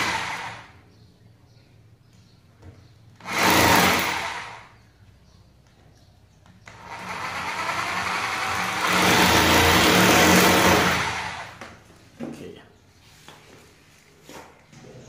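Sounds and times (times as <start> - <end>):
electric drill into masonry: 0.0 - 0.8, 3.2 - 4.8, 6.6 - 11.6.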